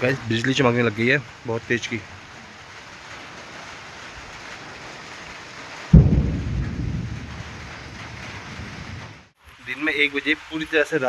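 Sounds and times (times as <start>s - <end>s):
rain hissing: 0.0s - 11.0s
thunder clap: 5.9s - 9.3s.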